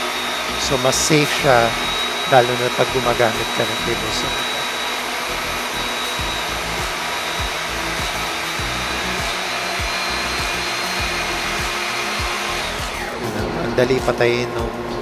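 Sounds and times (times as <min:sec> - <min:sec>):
dust collector running: 0:00.0 - 0:15.0
table saw cutting plywood: 0:00.0 - 0:15.0.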